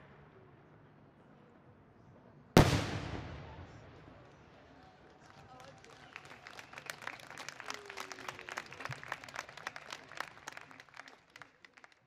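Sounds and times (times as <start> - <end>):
crowd applauding: 5.0 - 12.0.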